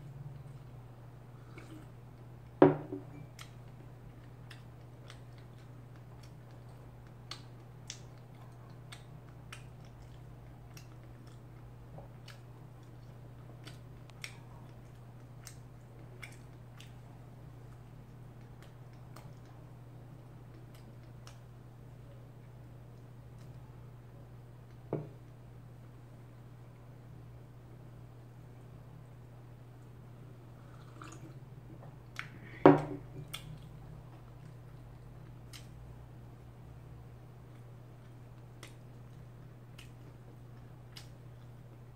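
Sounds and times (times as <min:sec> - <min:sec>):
steady low hum: 0:00.0 - 0:41.9
mug knocking on wooden table: 0:02.6 - 0:03.1, 0:24.9 - 0:25.1.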